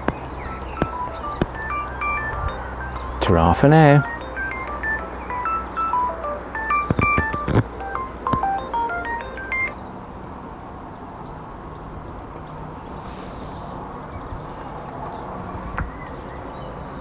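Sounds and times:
faint high chirps: 0:00.0 - 0:09.8
quick beeping tune: 0:00.0 - 0:09.8.

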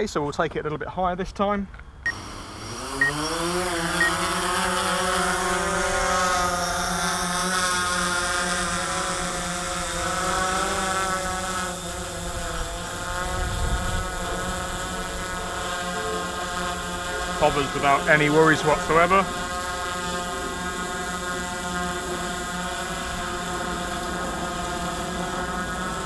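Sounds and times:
drone propellers whining: 0:02.1 - 0:26.0
wind rumbling on microphone: 0:12.2 - 0:15.5.

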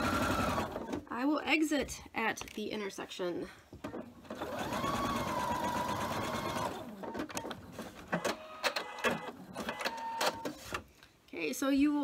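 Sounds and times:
sewing machine stitching: 0:00.0 - 0:01.0, 0:03.9 - 0:10.6.

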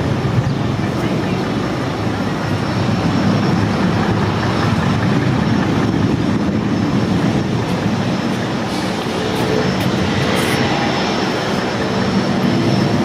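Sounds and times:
jet engines rumbling: 0:00.0 - 0:13.0.

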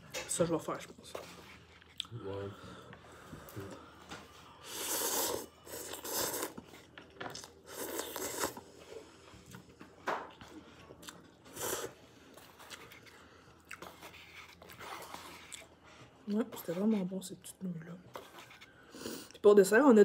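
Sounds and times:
person chewing: 0:01.6 - 0:02.1, 0:04.4 - 0:15.8
person slurping noodles: 0:04.6 - 0:06.8, 0:07.6 - 0:08.6, 0:11.5 - 0:12.0.

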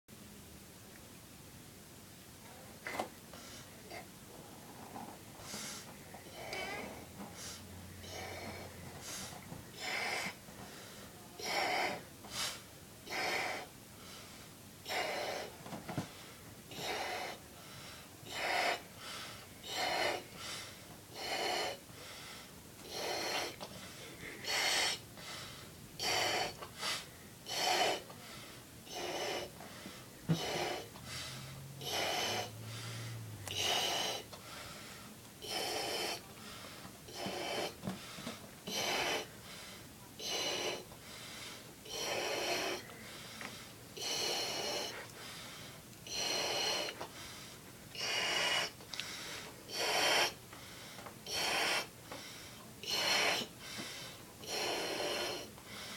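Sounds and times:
breath blowing into balloon: 0:48.0 - 0:50.4, 0:51.2 - 0:52.0, 0:52.8 - 0:53.6.

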